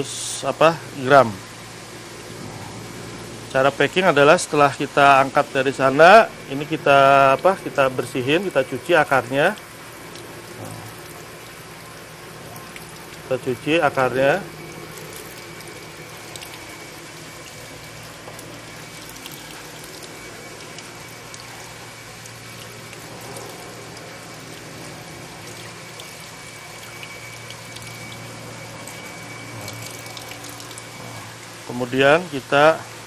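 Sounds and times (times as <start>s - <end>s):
tap water running: 0.0s - 33.0s
water splashing into sink: 14.4s - 31.0s.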